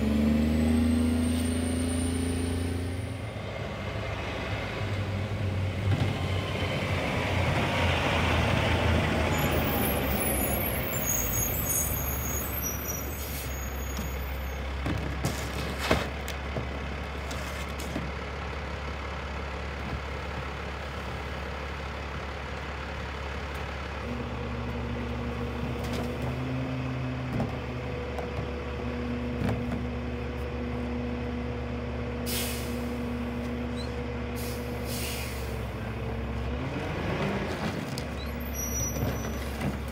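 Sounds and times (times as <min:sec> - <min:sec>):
garbage truck engine idling: 0:09.5 - 0:25.8
air brakes hissing: 0:09.6 - 0:14.6, 0:32.3 - 0:33.2, 0:34.4 - 0:35.8.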